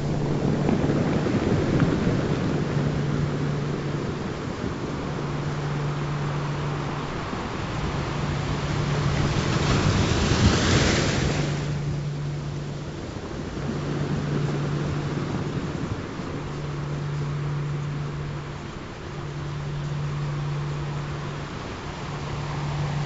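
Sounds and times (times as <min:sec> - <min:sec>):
low steady tone: 0:00.0 - 0:23.0
ocean surf washing: 0:00.0 - 0:23.0.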